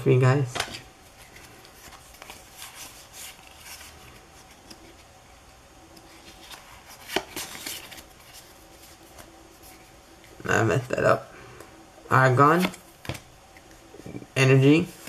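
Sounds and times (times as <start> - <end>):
cards sliding and scraping: 0.6 - 5.1, 5.9 - 10.4.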